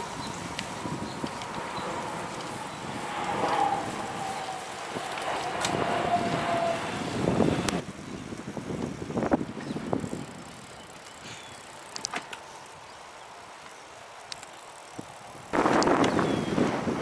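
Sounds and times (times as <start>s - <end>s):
thin whine: 0.0s - 7.8s
wind buffeting microphone: 0.0s - 12.0s, 14.9s - 17.0s
tyres rolling on asphalt: 0.0s - 17.0s.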